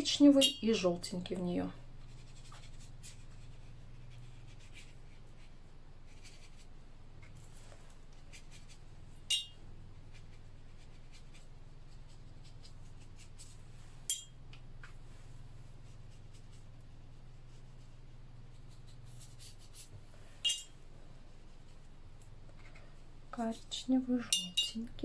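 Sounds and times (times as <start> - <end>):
steady low hum: 0.0 - 25.0
brush strokes on paper: 2.0 - 8.9, 14.9 - 20.5.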